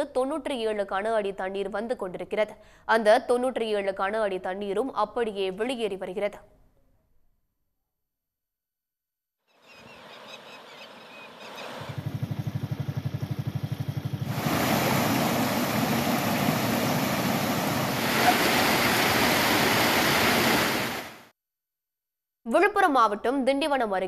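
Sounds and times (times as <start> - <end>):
water rushing down a rocky stream: 14.3 - 21.2.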